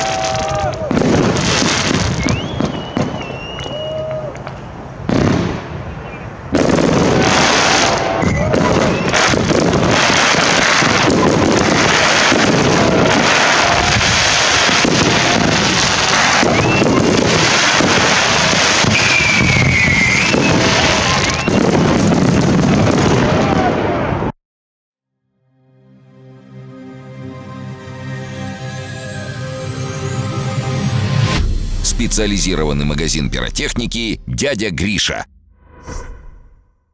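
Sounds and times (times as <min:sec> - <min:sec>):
fireworks launches and bursts: 0:00.0 - 0:05.8, 0:06.5 - 0:24.1
dense fireworks crackling: 0:00.0 - 0:24.3, 0:31.2 - 0:35.3.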